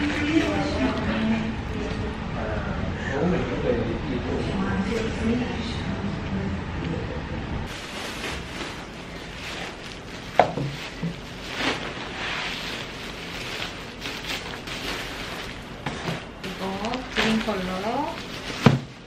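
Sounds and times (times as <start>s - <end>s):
plastic sack rustling and crinkling: 7.7s - 19.0s.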